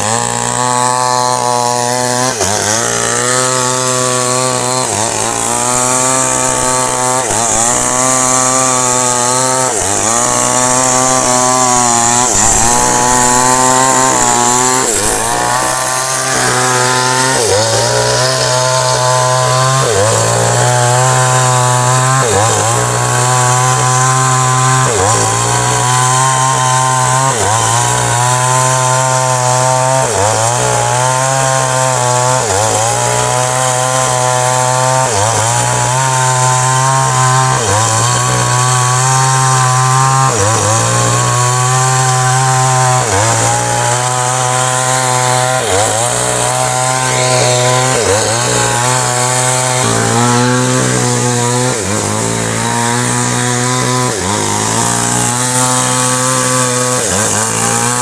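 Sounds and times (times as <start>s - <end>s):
chainsaw cutting wood: 0.0s - 58.0s.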